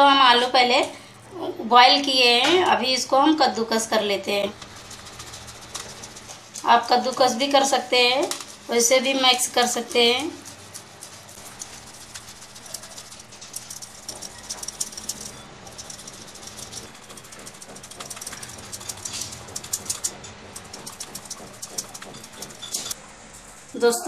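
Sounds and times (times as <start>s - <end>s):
potatoes scraping on metal grater: 3.6s - 23.0s.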